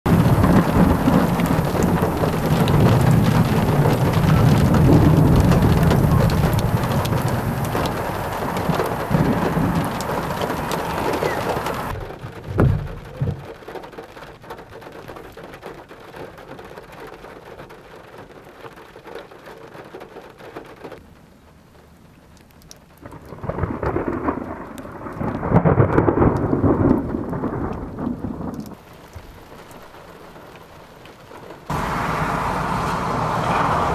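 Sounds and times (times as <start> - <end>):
thunder clap: 0.1 - 13.6, 23.0 - 28.8
thunder rumbling: 0.1 - 13.6, 23.0 - 28.8, 31.7 - 33.9
steady rain: 0.1 - 33.9.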